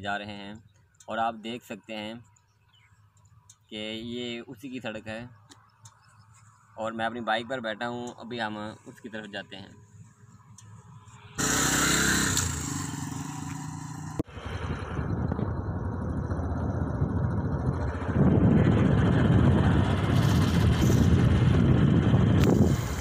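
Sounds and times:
motorcycle engine running: 11.2 - 23.0.

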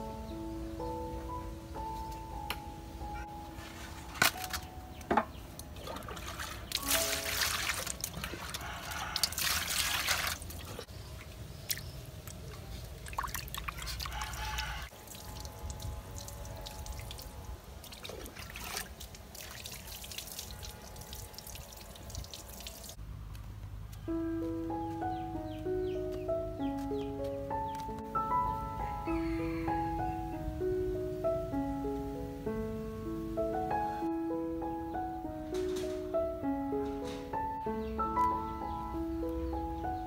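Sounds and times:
water splashing and pouring: 5.6 - 23.0.

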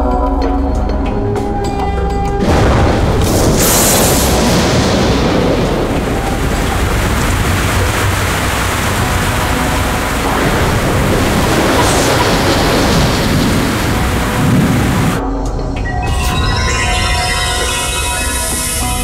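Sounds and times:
heavy rain: 2.4 - 15.2
thunder rumbling: 2.4 - 15.4.

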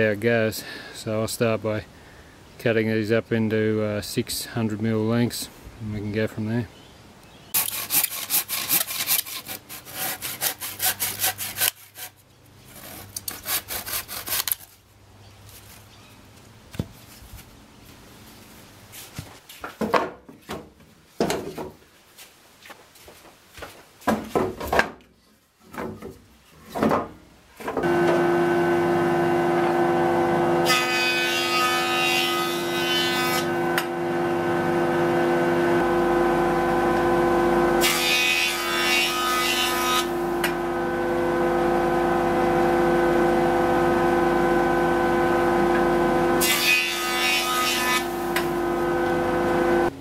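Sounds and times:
wood planing on jointer: 7.6 - 12.1, 27.8 - 50.0
jointer humming: 27.8 - 32.5, 33.1 - 50.0.

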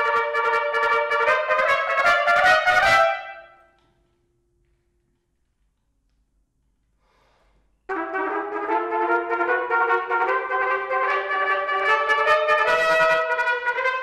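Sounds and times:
trumpet playing held notes: 0.0 - 3.7, 7.9 - 14.0.

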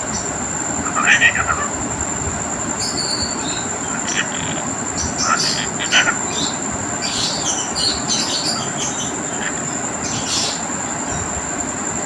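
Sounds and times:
steady rushing noise: 0.0 - 12.0
thin high whine: 0.0 - 12.0
cockatiel chirping: 0.1 - 1.8, 2.8 - 10.6.

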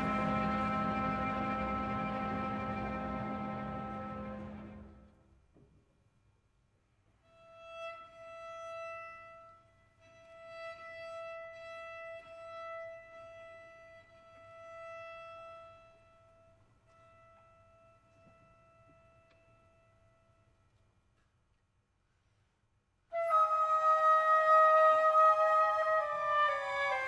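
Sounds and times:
violin holding a long high note: 0.0 - 5.1.

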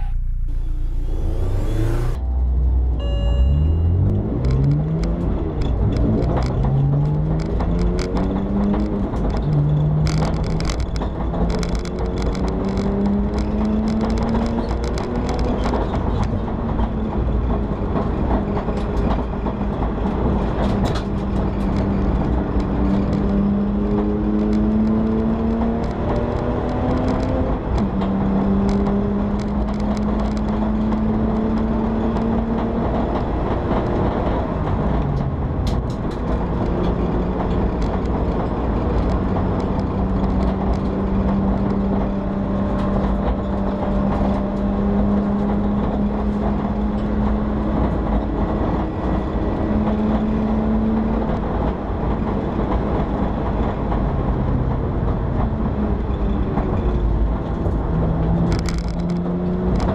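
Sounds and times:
car engine accelerating through gears: 0.0 - 59.9
sharp clicks and rattles: 4.4 - 54.2, 54.9 - 59.9.

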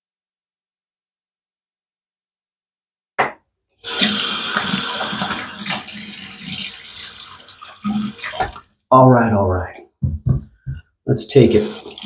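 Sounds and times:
tap running into sink: 7.9 - 8.6.

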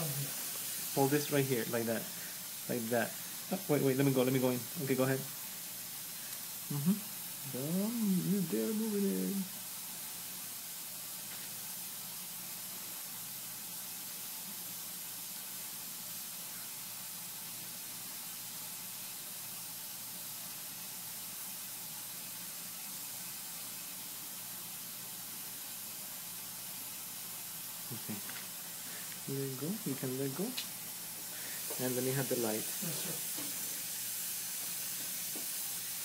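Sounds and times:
steady hiss: 0.0 - 36.0.

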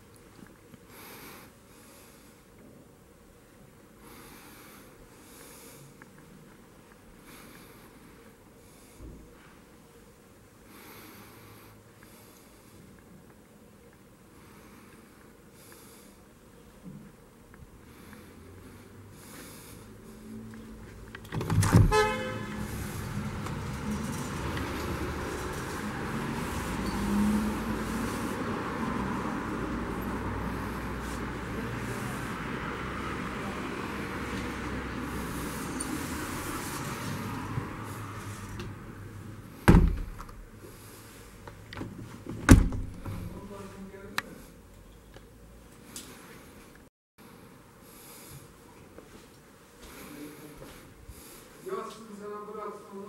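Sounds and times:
street traffic: 16.9 - 48.5
door opening clicks and thud: 21.2 - 22.0, 39.6 - 40.4, 41.8 - 43.4.

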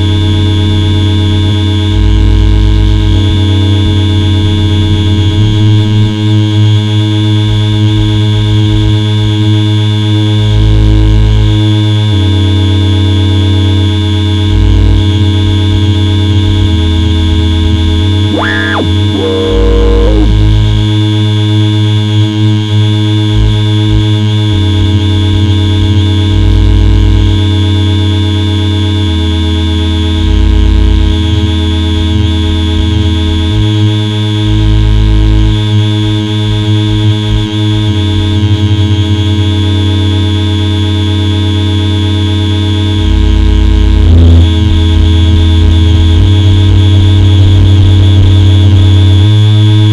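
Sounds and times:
buzzing electronic drone: 0.0 - 49.9
loud low hum: 0.0 - 49.9
heavy low bass throb: 14.4 - 28.0, 41.8 - 49.9
tone sweeping upward: 18.3 - 20.7.

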